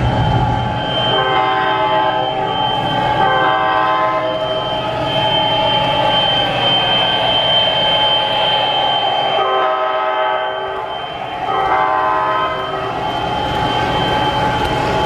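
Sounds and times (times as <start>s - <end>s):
model train running on track: 0.0s - 15.0s
model train horn blasts: 1.0s - 4.8s, 9.3s - 13.1s.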